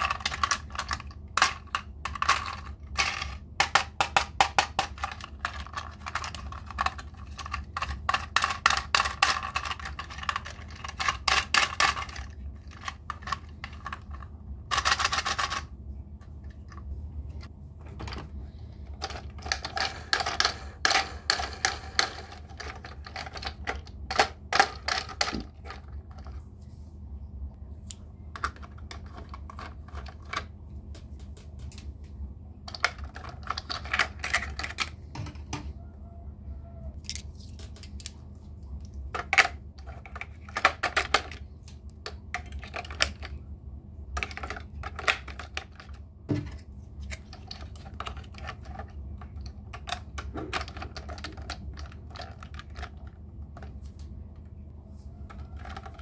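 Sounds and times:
plastic toy pieces clattering: 0.0 - 15.7, 18.9 - 26.4, 28.3 - 30.6, 32.7 - 35.4, 39.1 - 43.4, 44.1 - 53.8, 55.2 - 56.0
low hum: 9.4 - 56.0.

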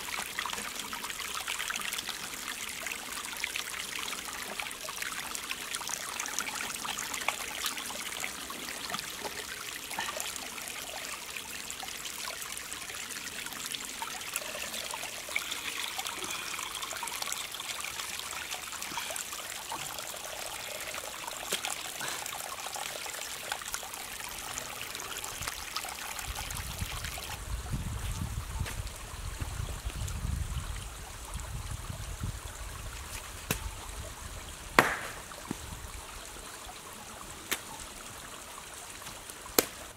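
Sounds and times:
water trickling and splashing: 0.0 - 39.9.

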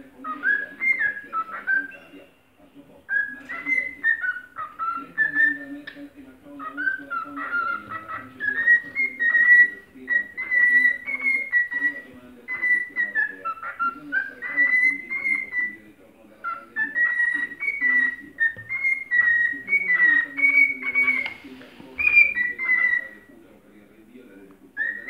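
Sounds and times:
cockatiel whistling song: 0.2 - 2.3, 3.1 - 6.0, 6.6 - 15.8, 16.4 - 21.4, 22.0 - 23.3, 24.8 - 25.0.

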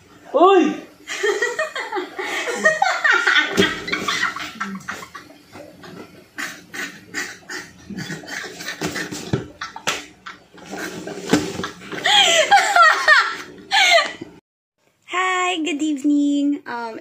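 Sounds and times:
woman laughing hard: 1.1 - 5.2, 11.9 - 14.2.

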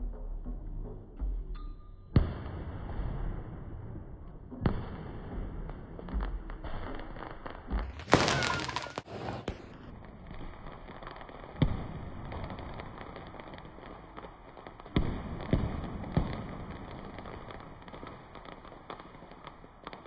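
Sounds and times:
fireworks bangs: 2.2 - 20.0
fireworks crackling: 4.5 - 20.0.

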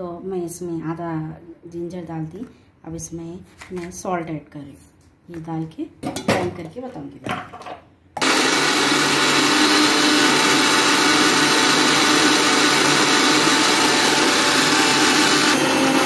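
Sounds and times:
mixer grinder whirring: 8.2 - 16.0.

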